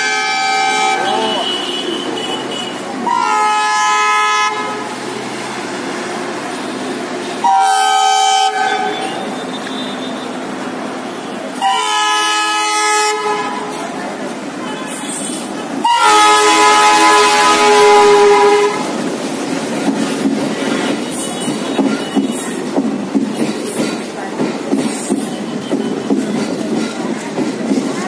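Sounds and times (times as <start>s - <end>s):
locomotive horn blasts: 0.0s - 4.9s, 7.4s - 10.4s, 11.4s - 13.8s, 15.8s - 18.9s
train engine and rolling noise: 0.0s - 28.0s.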